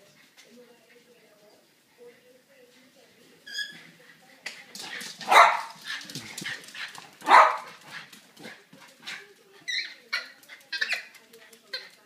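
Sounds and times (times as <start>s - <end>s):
dog barking: 5.2s - 5.8s, 7.2s - 7.7s.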